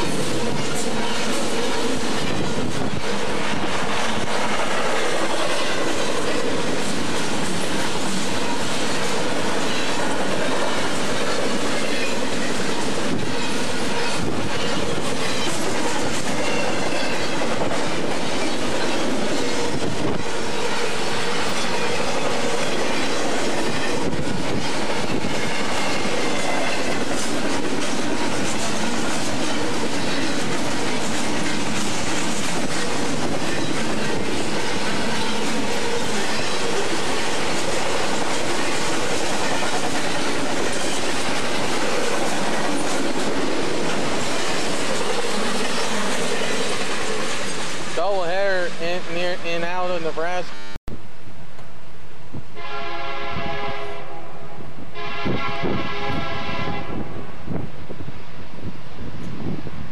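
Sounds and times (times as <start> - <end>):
train wheels rumbling on rails: 0.0 - 59.9
high wheel squeals: 11.2 - 19.8.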